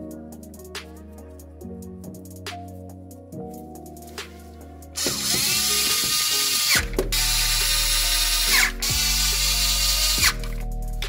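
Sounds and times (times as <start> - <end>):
cordless power tool whirring: 5.0 - 10.4.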